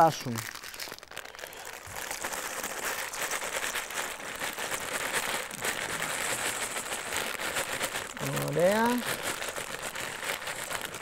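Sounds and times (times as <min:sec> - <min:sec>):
pasta pouring into boiling water: 0:00.0 - 0:11.0
plastic bag crinkling: 0:00.0 - 0:11.0.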